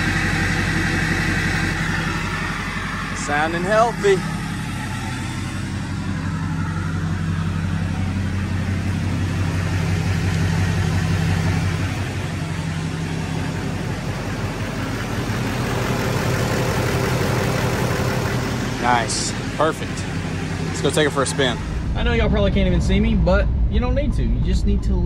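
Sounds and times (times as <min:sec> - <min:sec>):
diesel engine idling: 0:00.0 - 0:24.1.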